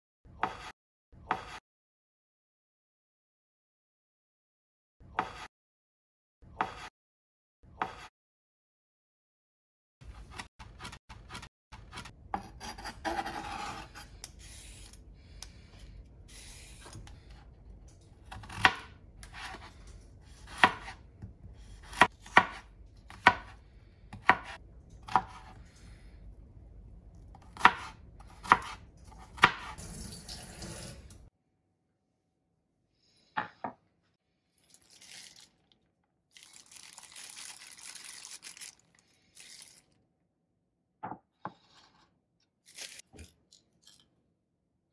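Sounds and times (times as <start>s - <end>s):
knife chopping on cutting board: 0.4s - 0.7s, 10.2s - 14.1s, 18.2s - 19.7s, 20.3s - 25.5s, 27.5s - 29.8s.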